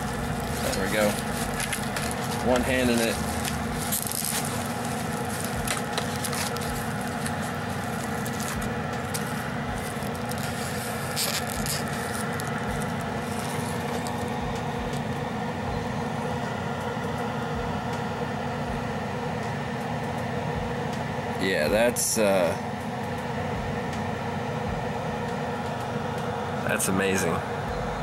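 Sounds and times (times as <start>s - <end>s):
plastic packaging crinkling: 0.0s - 15.2s
fan hum: 0.0s - 28.0s.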